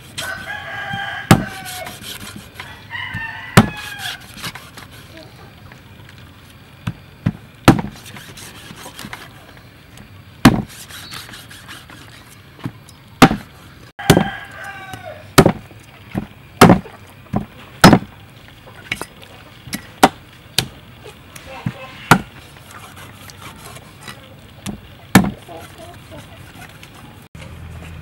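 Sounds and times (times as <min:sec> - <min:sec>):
cleaver chopping on wooden block: 0:01.0 - 0:01.6, 0:03.6 - 0:03.9, 0:07.7 - 0:08.0, 0:10.4 - 0:10.8, 0:13.2 - 0:15.6, 0:16.2 - 0:18.1, 0:24.6 - 0:25.4.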